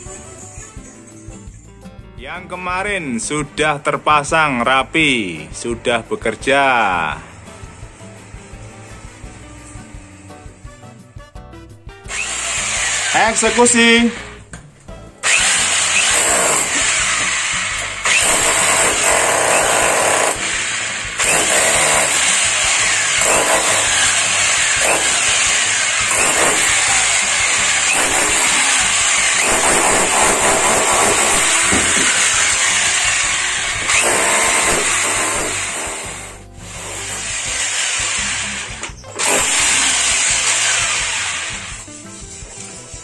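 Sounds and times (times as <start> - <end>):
electric chipping hammer on masonry: 12.1 - 14.1, 15.2 - 43.0.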